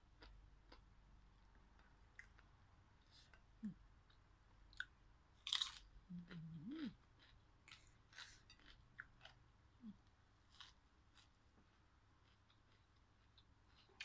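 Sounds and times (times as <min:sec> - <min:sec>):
crunchy vegetable chewing: 0:04.8 - 0:14.0
person humming: 0:06.1 - 0:07.0.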